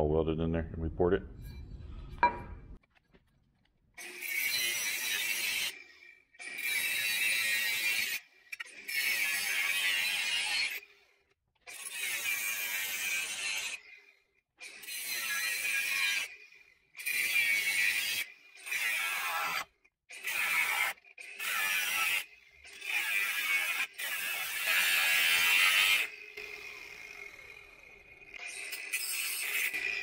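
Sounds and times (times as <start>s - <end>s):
angle grinder cutting metal: 4.0s - 10.9s, 11.7s - 13.9s, 14.6s - 30.0s.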